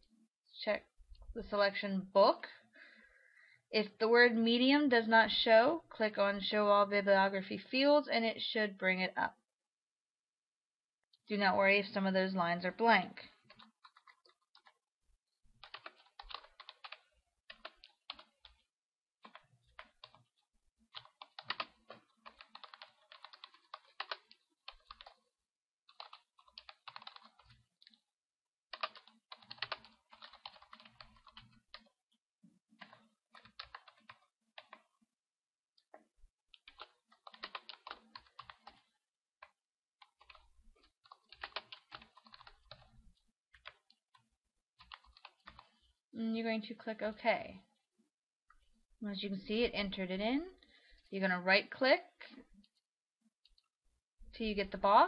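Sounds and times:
typing on computer keyboard: 0:13.4 - 0:14.8, 0:15.6 - 0:18.6, 0:19.2 - 0:20.3, 0:21.0 - 0:25.2, 0:25.9 - 0:28.0, 0:28.7 - 0:31.9, 0:32.8 - 0:34.9, 0:36.6 - 0:42.9, 0:43.6 - 0:44.0, 0:44.8 - 0:45.8.

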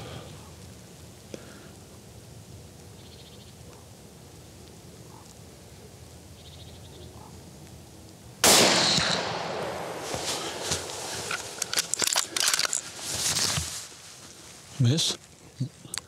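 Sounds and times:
faint outdoor background: 0:00.0 - 0:16.0
rifle shot with echo: 0:08.4 - 0:11.6.

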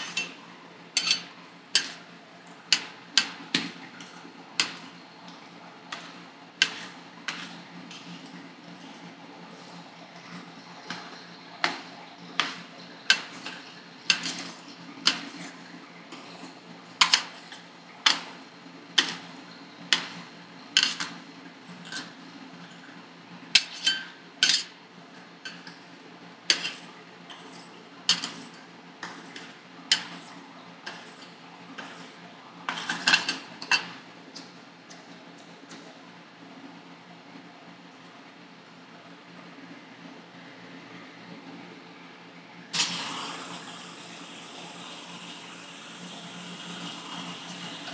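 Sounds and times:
metal spatulas tapping metal plate: 0:01.0 - 0:02.0.

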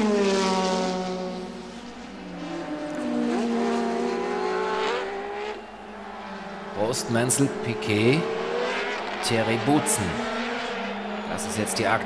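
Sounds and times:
racing car engine passing: 0:00.0 - 0:12.0.

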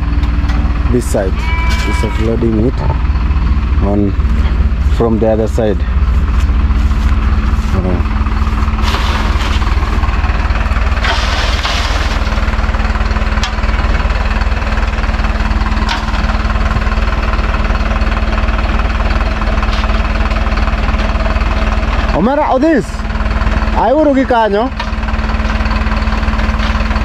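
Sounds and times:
truck engine running: 0:00.0 - 0:27.0.

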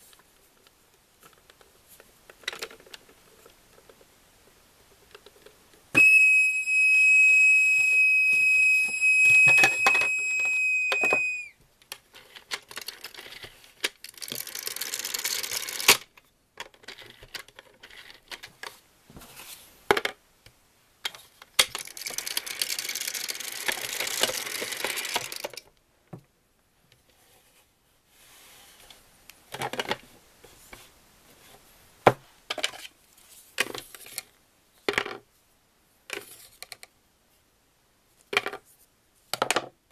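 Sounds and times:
toy tea pot whistle: 0:06.0 - 0:11.6
plastic toy pieces clicking: 0:12.2 - 0:18.5, 0:21.6 - 0:25.7.

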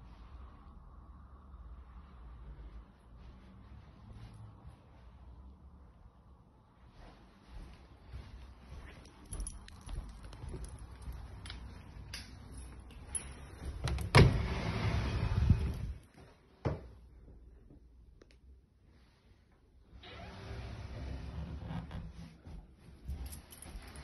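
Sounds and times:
footsteps: 0:02.3 - 0:06.0, 0:06.8 - 0:13.8, 0:22.4 - 0:24.0
keys jangling: 0:09.2 - 0:14.1, 0:23.2 - 0:24.0.

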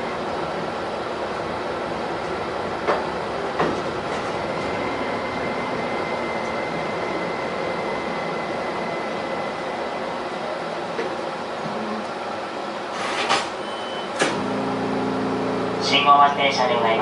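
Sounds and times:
tram rumbling on rails: 0:00.0 - 0:17.0
high-pitched traction whine: 0:14.3 - 0:17.0.

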